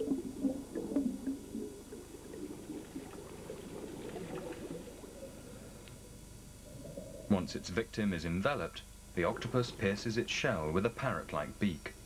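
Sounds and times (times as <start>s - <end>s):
watery gurgling and squelching: 0.0s - 5.6s.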